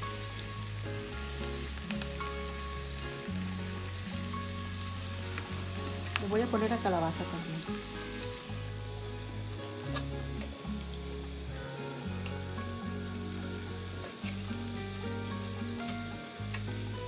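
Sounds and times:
background music: 0.0s - 17.0s
vegetables sizzling in oil: 0.0s - 17.0s.

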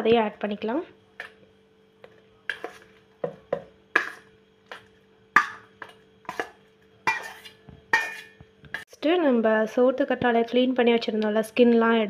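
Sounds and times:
steel spoon scraping metal bowl: 7.1s - 8.4s.

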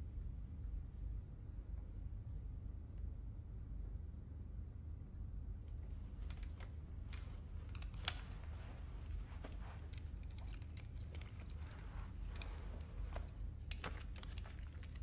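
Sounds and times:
low steady hum: 0.0s - 15.0s
faint clicks: 5.7s - 15.0s
cloth rustling: 5.8s - 15.0s.

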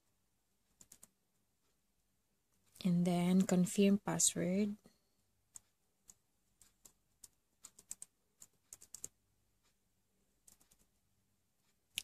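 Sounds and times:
keyboard typing clicks: 0.8s - 1.2s, 5.5s - 9.2s, 10.4s - 10.9s.

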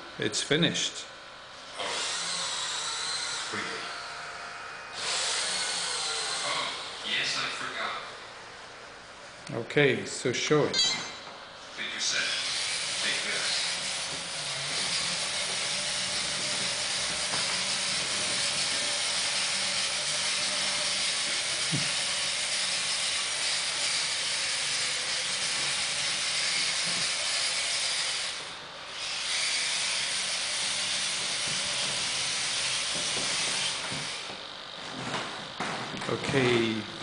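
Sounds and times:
robot motors whirring: 1.8s - 3.8s, 5.0s - 7.0s, 12.3s - 34.4s.

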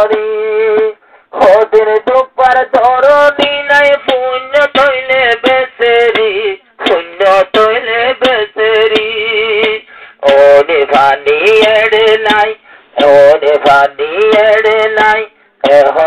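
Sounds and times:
man singing devotional song: 0.0s - 16.0s
singer breathing: 1.0s - 1.4s, 9.8s - 10.2s, 12.6s - 13.0s, 15.3s - 15.6s.

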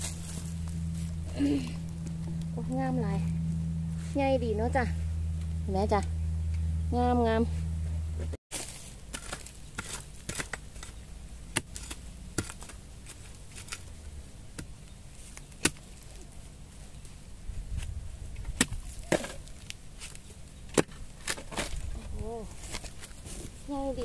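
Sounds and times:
spade chopping into soil and roots: 8.5s - 13.8s, 14.5s - 16.0s, 18.5s - 21.8s.

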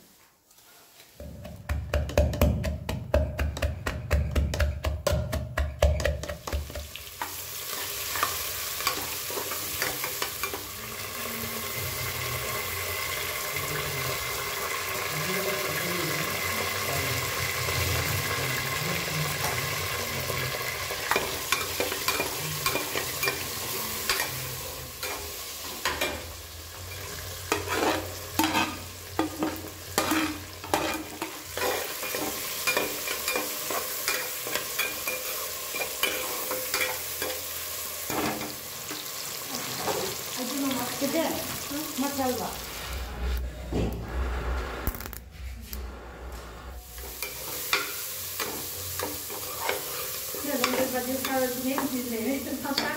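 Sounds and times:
food sizzling in a pan: 0.0s - 1.8s, 6.0s - 43.4s, 44.1s - 52.9s
utensil scraping a pan: 20.3s - 37.4s, 44.0s - 52.1s.

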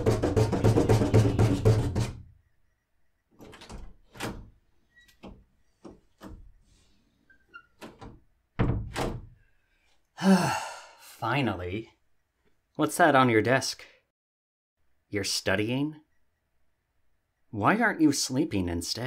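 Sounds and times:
rapid knocking on a door: 0.0s - 2.3s
quiet thuds and knocks: 0.0s - 2.4s, 7.8s - 9.3s.

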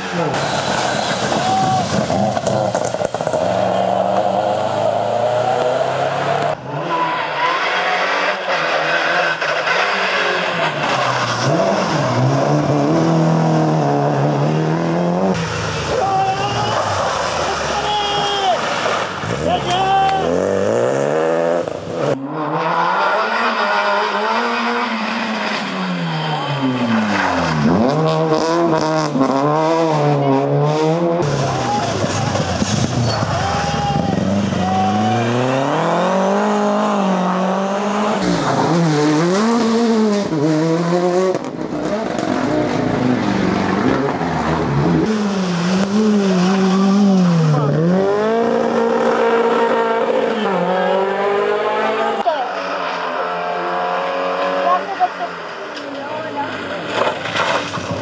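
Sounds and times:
rally car engines revving: 0.0s - 58.0s.

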